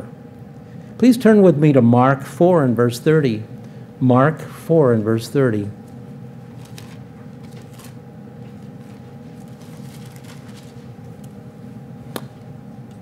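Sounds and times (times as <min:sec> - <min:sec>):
steady room hum: 0:00.0 - 0:13.0
paper pages rustling: 0:06.5 - 0:11.3.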